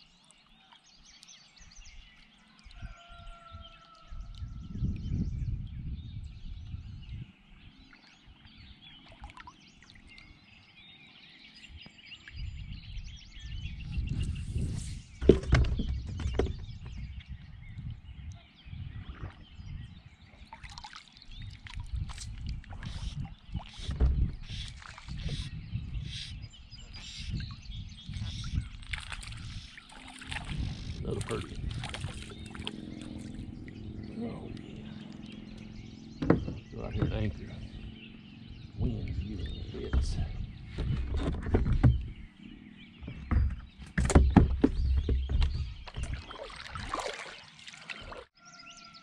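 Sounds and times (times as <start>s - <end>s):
wind buffeting microphone: 2.7s - 8.9s, 11.5s - 20.5s, 21.2s - 47.1s
paddle knocking on kayak hull: 15.2s - 17.1s, 36.2s - 37.3s, 39.7s - 42.2s, 43.0s - 47.0s.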